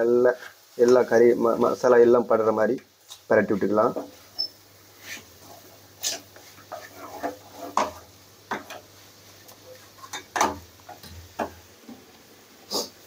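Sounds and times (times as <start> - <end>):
wooden spatula knocking on metal pan: 10.1 - 11.6.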